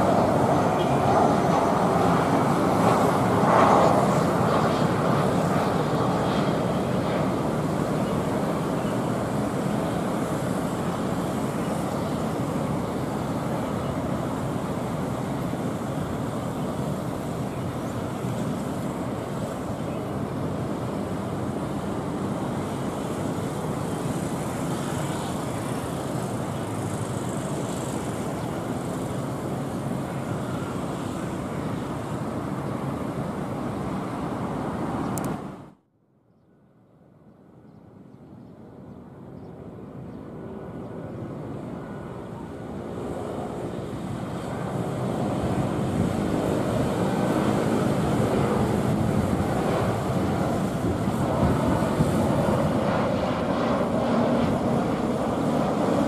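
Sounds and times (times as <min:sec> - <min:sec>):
jet engines roaring: 0:00.0 - 0:35.7, 0:39.1 - 0:56.0.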